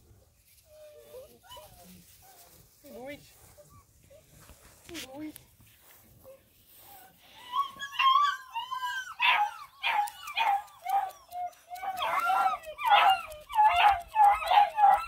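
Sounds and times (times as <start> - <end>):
puppies whining and yelping: 0.6 - 2.6, 6.2 - 15.0.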